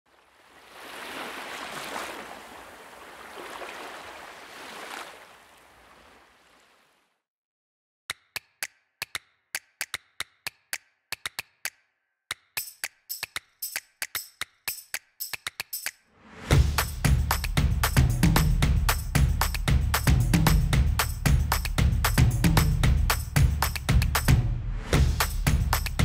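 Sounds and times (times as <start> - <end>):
sea waves washing in: 0.1 - 7.0
dry clicking music beat: 8.1 - 26.0.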